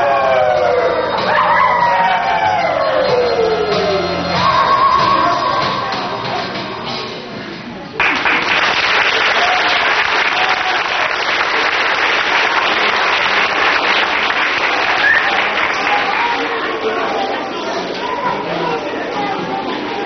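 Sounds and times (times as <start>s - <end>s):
song ending: 0.0s - 7.4s
audience applauding: 8.0s - 16.7s.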